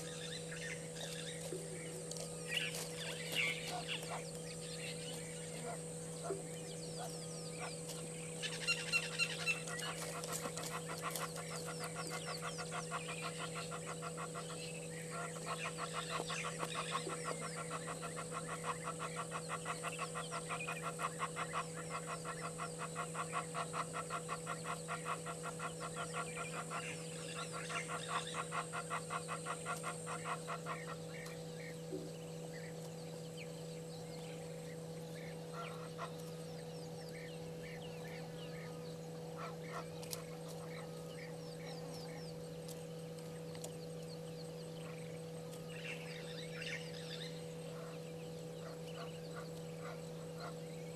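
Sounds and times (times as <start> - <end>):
steady low hum: 0.0 - 50.9
geese honking: 2.1 - 31.8, 35.5 - 36.3, 37.6 - 41.4, 48.6 - 50.7.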